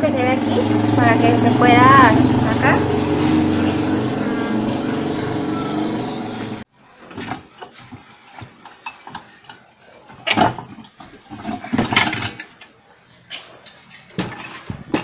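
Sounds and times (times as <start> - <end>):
small metal parts clattering: 10.2 - 12.6.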